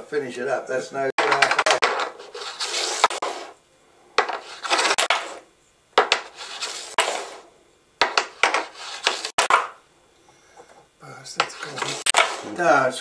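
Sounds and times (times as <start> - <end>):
wooden discs clacking: 1.2 - 3.6, 4.2 - 5.4, 6.0 - 7.4, 8.0 - 9.8, 11.4 - 12.6
wooden discs sliding and rattling: 1.2 - 3.6, 4.2 - 9.8, 11.4 - 12.7.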